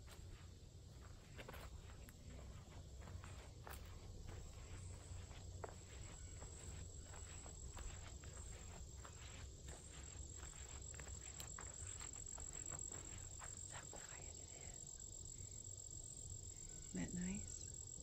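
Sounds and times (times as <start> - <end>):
footsteps crunching through dry leaves: 0.0 - 13.6
brushing undergrowth: 0.0 - 13.8
high insect trill: 0.0 - 18.0.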